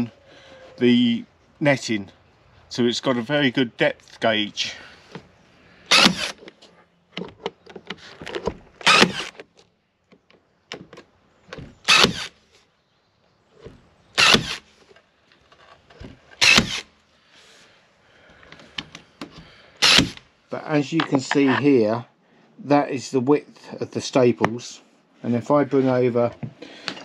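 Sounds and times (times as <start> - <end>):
handling clicks and knocks: 6.4 - 8.8, 20.9 - 21.7.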